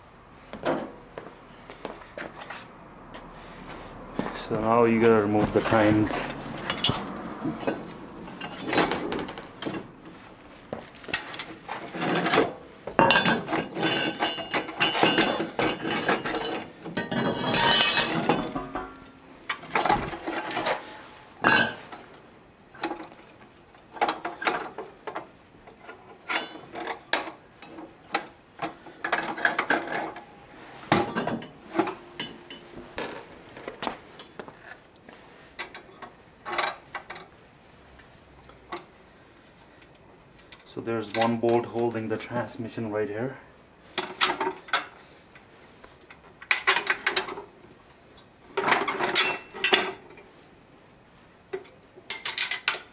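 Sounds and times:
metal clanking and clinking: 0:06.6 - 0:09.9, 0:10.6 - 0:20.7, 0:30.9 - 0:34.4, 0:52.1 - 0:52.9.

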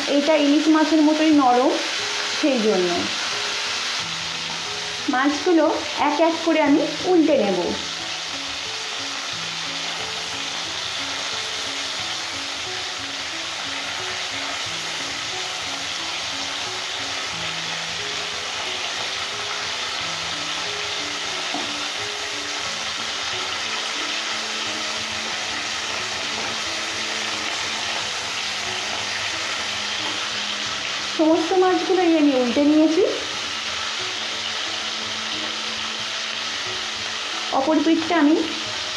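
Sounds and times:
background music: 0:00.0 - 0:38.9
fish sizzling in oil: 0:00.0 - 0:38.9
wooden spatula turning fish: 0:13.5 - 0:31.3.

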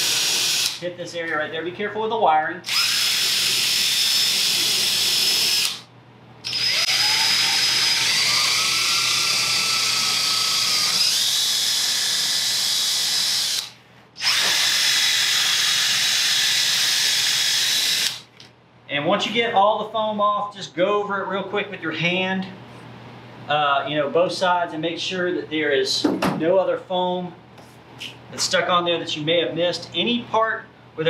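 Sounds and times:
power drill spinning brush: 0:00.0 - 0:00.8, 0:02.7 - 0:05.8, 0:06.5 - 0:18.2.

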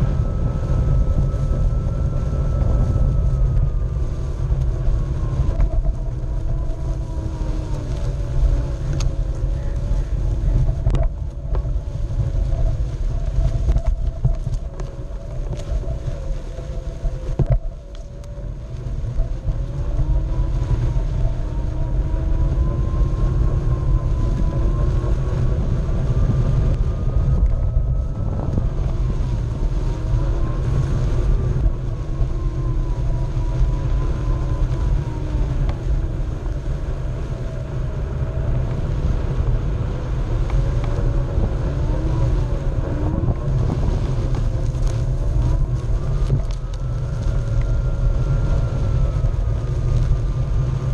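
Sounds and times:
electric motor whining: 0:00.0 - 0:50.9
wind on microphone: 0:00.0 - 0:50.9
tyre rolling over grass: 0:04.4 - 0:22.1, 0:39.3 - 0:50.9.

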